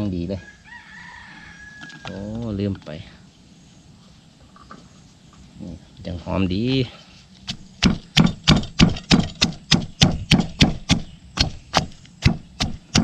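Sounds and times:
pestle pounding in a mortar: 0:07.5 - 0:13.0.

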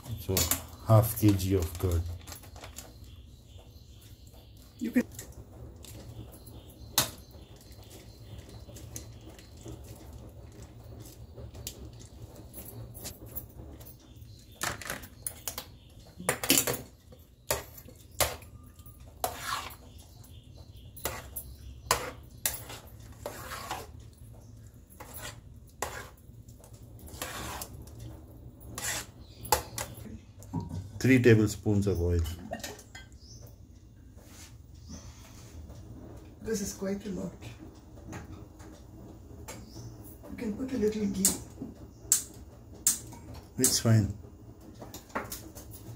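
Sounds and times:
metal spoon scraping metal pot: 0:19.2 - 0:20.0, 0:21.0 - 0:24.1, 0:25.0 - 0:26.2, 0:27.0 - 0:28.0, 0:28.7 - 0:30.0.

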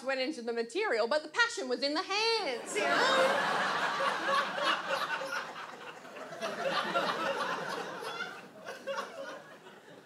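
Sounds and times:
audience laughing: 0:02.6 - 0:10.0.

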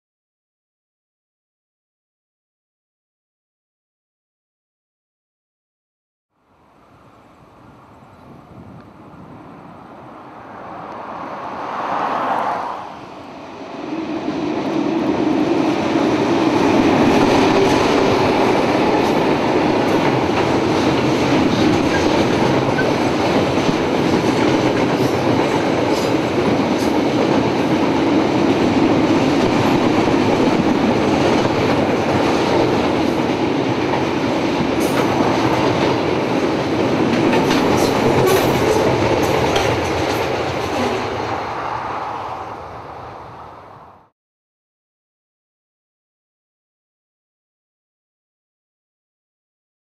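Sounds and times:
freight train rumbling: 0:06.8 - 0:44.1
wheels clicking over rail joints: 0:17.2 - 0:41.3.

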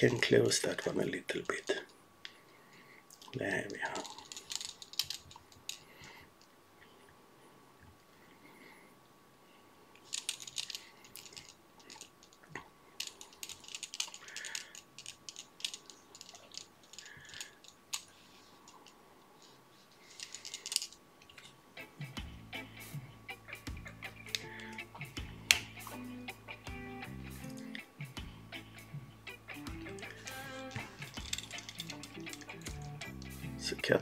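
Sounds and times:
fingers clicking and crinkling materials: 0:03.1 - 0:06.2, 0:10.0 - 0:19.0, 0:20.0 - 0:22.3, 0:23.5 - 0:34.0.

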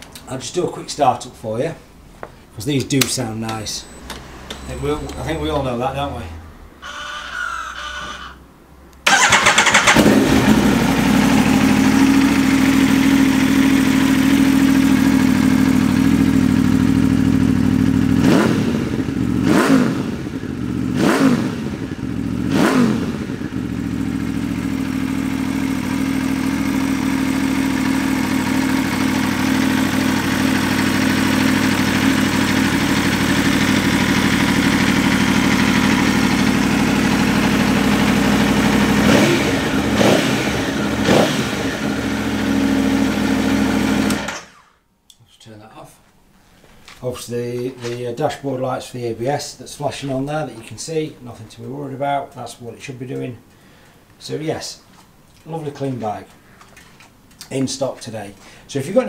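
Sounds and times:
motorcycle engine revving: 0:03.9 - 0:06.8, 0:09.0 - 0:44.7
motorcycle engine idling: 0:09.0 - 0:44.4.

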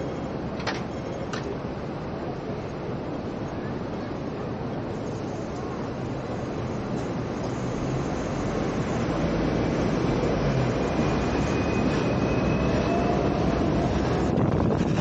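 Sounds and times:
faint high whine from rails: 0:00.0 - 0:15.0
tram wheels and motor rumbling: 0:00.0 - 0:15.0
wind hiss: 0:04.6 - 0:15.0.

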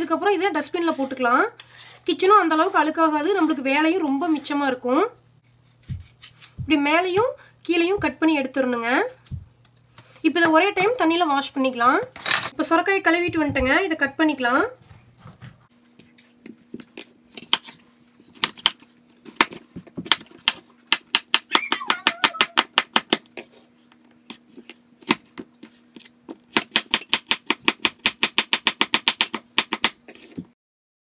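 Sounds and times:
knife chopping on wooden board: 0:26.5 - 0:30.0.

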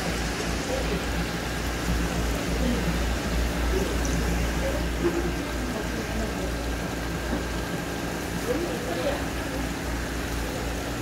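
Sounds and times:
water pouring into a tank: 0:00.0 - 0:11.0.

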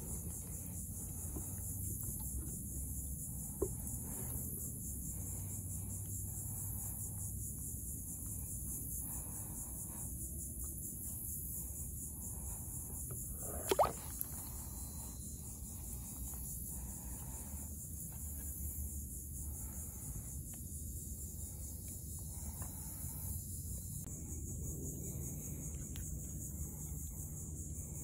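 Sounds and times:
insects chorus: 0:00.0 - 0:28.0
water plop: 0:13.5 - 0:14.3.

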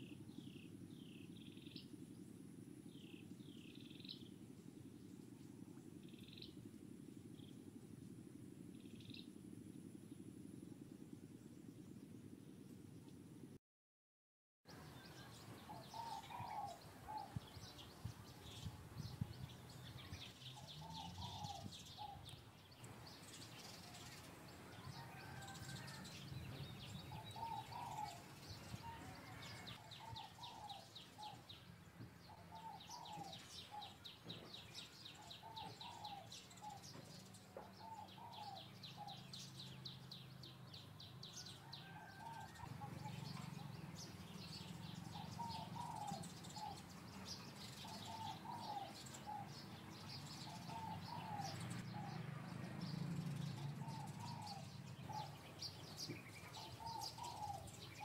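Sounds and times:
low steady hum: 0:00.0 - 0:13.6
bird calls: 0:14.7 - 0:58.0.

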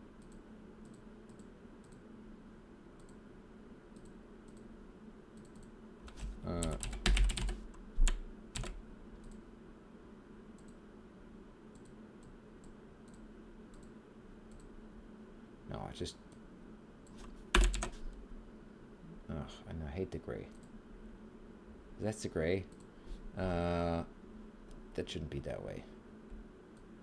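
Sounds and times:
keyboard typing: 0:05.4 - 0:09.4, 0:17.0 - 0:18.0.

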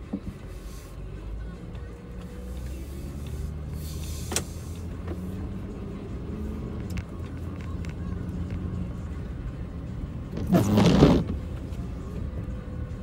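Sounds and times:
car engine and road rumble: 0:00.0 - 0:13.0
windshield wiper swish: 0:10.3 - 0:11.8.

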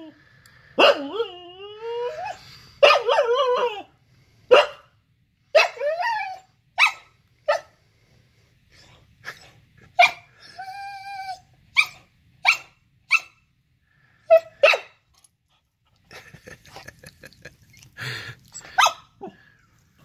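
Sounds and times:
puppy whine-howl: 0:00.9 - 0:02.4, 0:05.8 - 0:06.5, 0:10.5 - 0:11.5
puppy barking: 0:04.5 - 0:04.9, 0:11.8 - 0:13.4, 0:14.3 - 0:15.0, 0:18.6 - 0:19.4.

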